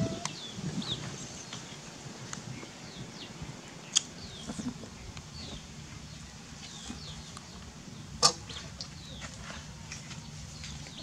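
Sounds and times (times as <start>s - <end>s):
birds chirping: 0.0s - 1.9s.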